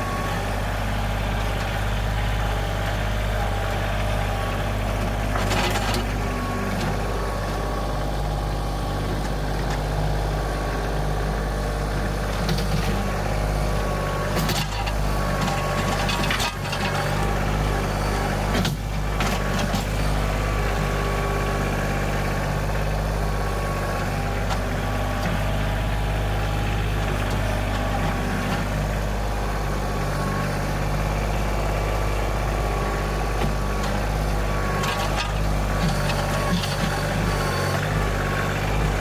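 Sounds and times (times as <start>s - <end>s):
tractor diesel engine running: 0.0s - 39.0s.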